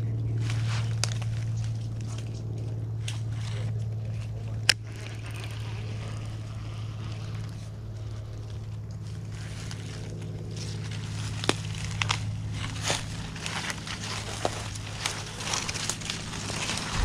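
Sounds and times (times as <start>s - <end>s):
steady low hum: 0.0s - 17.0s
brushing through undergrowth: 0.4s - 2.5s, 5.2s - 17.0s
twigs snapping: 0.5s - 3.2s, 8.6s - 17.0s
footsteps crunching dry leaves: 9.1s - 17.0s.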